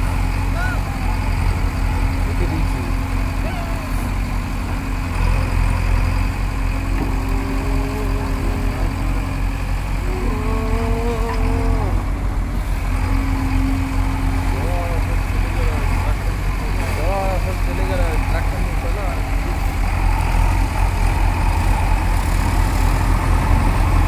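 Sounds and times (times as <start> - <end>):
diesel engine droning: 0.0 - 24.0
long wavering calls: 7.2 - 12.1.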